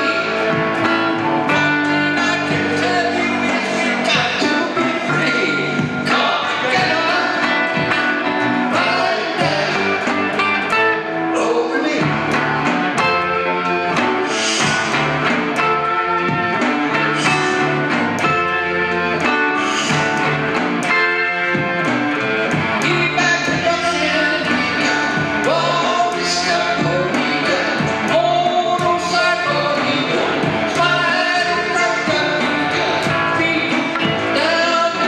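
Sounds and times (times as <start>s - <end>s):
rock band playing live: 0.0s - 35.0s.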